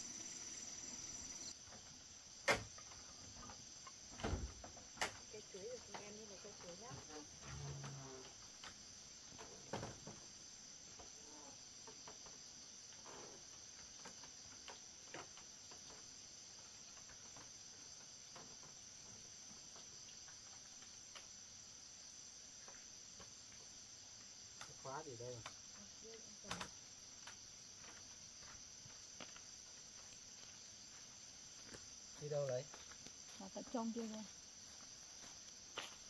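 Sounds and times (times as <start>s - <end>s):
insects chirring: 0.0s - 36.0s.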